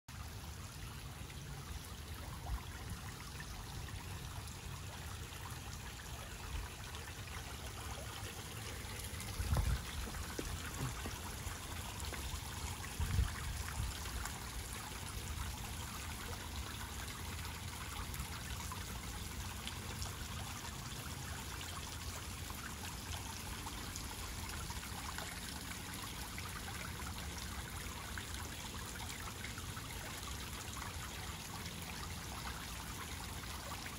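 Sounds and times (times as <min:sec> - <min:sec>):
fountain water pattering on pond: 0:00.1 - 0:33.9
low bumps: 0:09.0 - 0:13.4.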